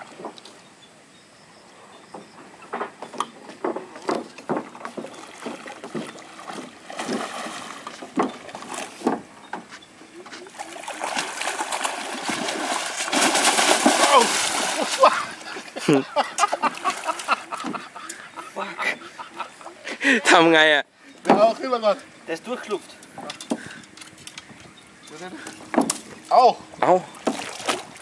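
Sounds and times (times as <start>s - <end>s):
knocks on wooden dock: 2.1s - 7.3s, 7.9s - 9.7s, 21.2s - 21.6s, 25.6s - 26.1s, 27.2s - 27.5s
fish splashing in water: 4.8s - 9.1s, 10.5s - 15.6s, 27.2s - 28.0s.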